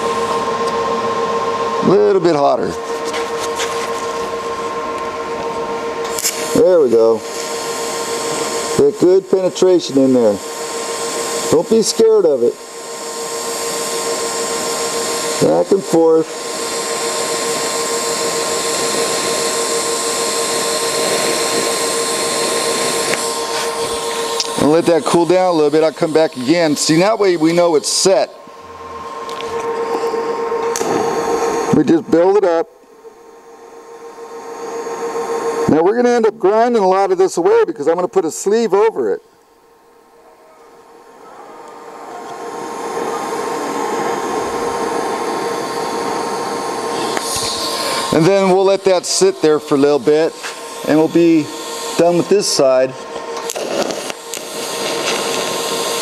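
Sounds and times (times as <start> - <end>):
faint hum: 0.0 - 56.0
steady mid-pitched tone: 0.0 - 56.0
welding arc hissing: 1.8 - 28.4, 29.2 - 32.6, 41.6 - 56.0.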